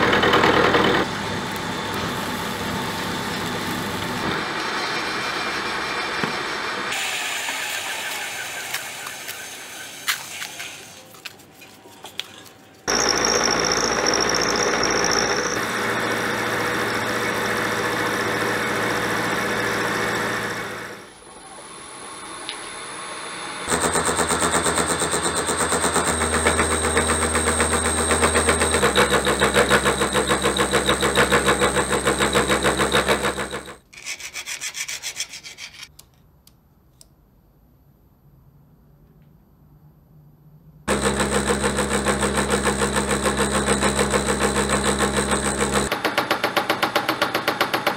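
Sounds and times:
milling machine cutting steel: 12.9s - 21.0s, 23.7s - 33.8s, 40.9s - 46.0s.

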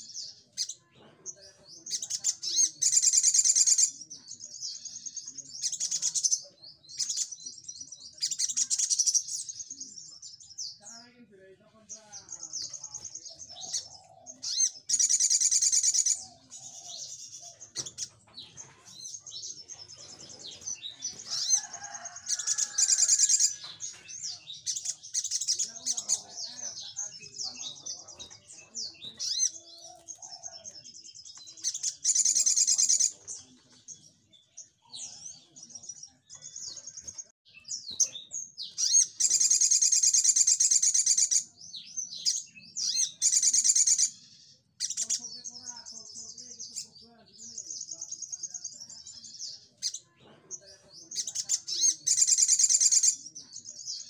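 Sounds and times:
rattling burst of birdsong: 12.2s - 41.4s.

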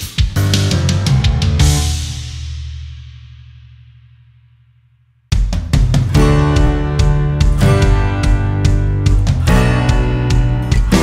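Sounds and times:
background music: 0.0s - 2.5s, 5.4s - 11.0s
loud drum hits: 5.3s - 11.0s.

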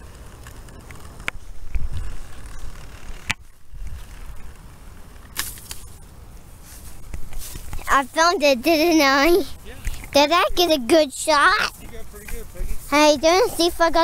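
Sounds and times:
outdoor background rumble: 0.0s - 14.0s.

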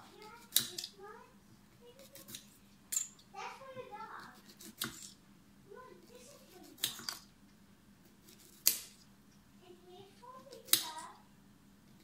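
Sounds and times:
knife chopping cucumber: 2.0s - 2.5s, 4.2s - 5.2s, 6.1s - 7.2s, 8.1s - 9.0s, 10.4s - 11.0s.

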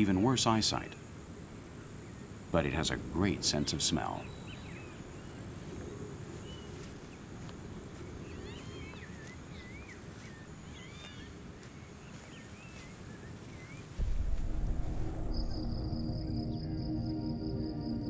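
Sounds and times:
high-pitched insect drone: 0.0s - 13.2s, 13.9s - 18.0s
bird chirping: 3.5s - 5.5s
low steady rumble: 14.0s - 17.2s.

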